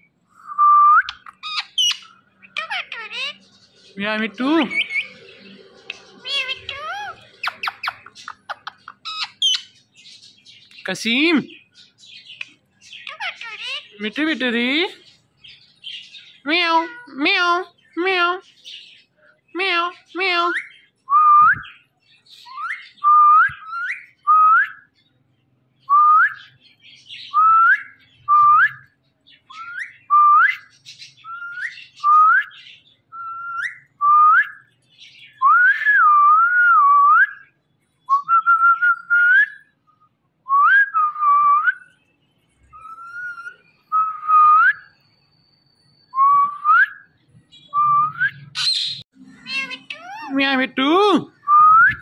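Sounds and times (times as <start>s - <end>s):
parakeet whistling: 0.6s - 3.4s, 4.5s - 5.3s, 5.9s - 9.8s, 29.5s - 32.6s, 42.7s - 45.0s, 46.2s - 50.8s.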